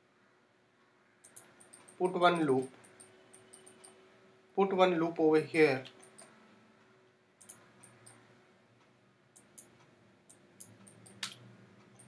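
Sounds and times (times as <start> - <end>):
computer mouse clicks: 1.2 - 4.0, 5.8 - 6.4, 7.4 - 8.3, 9.3 - 12.0.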